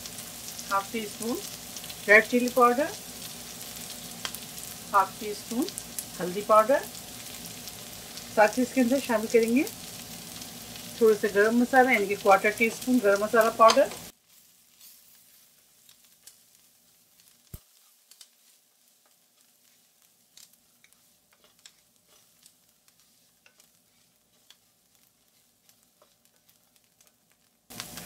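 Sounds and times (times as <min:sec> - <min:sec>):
onion frying in oil: 0:00.0 - 0:28.0
spatula ticks and scrapes: 0:13.4 - 0:28.0.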